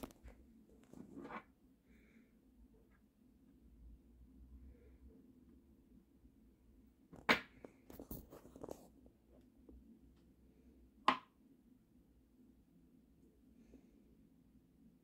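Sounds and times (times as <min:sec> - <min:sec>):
faint steady hum: 0:00.0 - 0:15.0
small clicks and rubs: 0:07.8 - 0:09.1.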